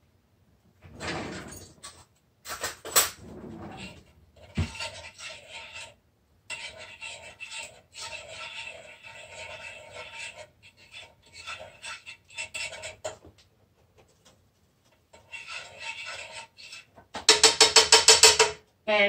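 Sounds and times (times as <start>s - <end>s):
utensil scraping a frying pan: 3.2s - 13.3s, 14.9s - 18.5s
pan rattling on stove burner: 17.1s - 18.6s.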